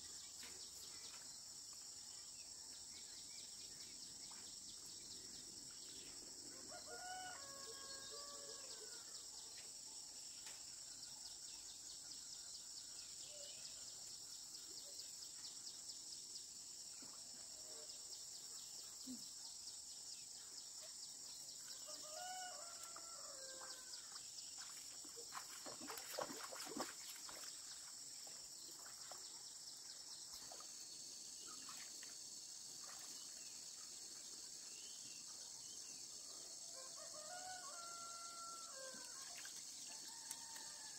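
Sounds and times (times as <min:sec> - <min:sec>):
crickets chirping: 0:00.0 - 0:40.9
rooster crowing: 0:06.6 - 0:08.9, 0:22.0 - 0:23.8, 0:36.8 - 0:39.1.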